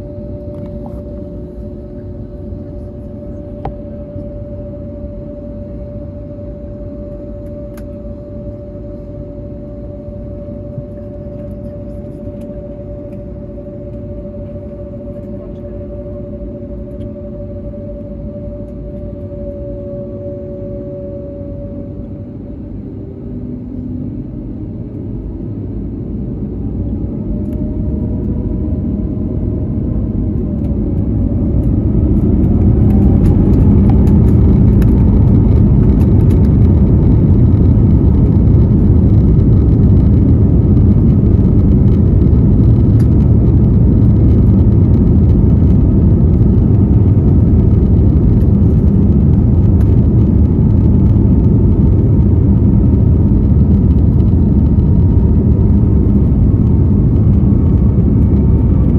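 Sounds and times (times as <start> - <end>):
rumble of engines and wheels: 0.0 - 58.9
jet engines spooling up: 26.4 - 58.9.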